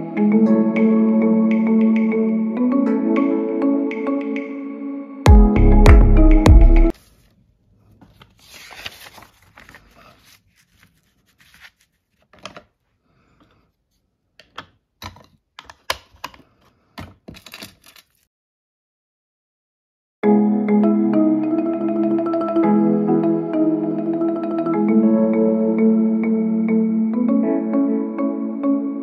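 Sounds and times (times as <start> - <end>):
background music: 0.0 - 6.9, 20.2 - 29.0
paper rustling: 6.9 - 12.8.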